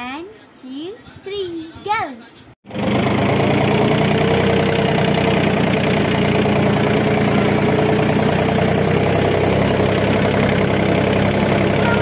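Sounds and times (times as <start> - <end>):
tractor diesel engine running: 2.7 - 12.0.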